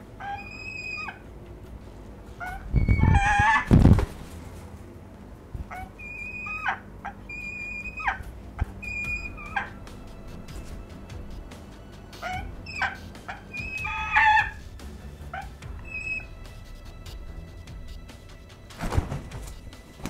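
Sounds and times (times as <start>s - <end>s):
falcon calling: 0.0s - 1.3s, 2.3s - 3.8s, 5.6s - 17.2s.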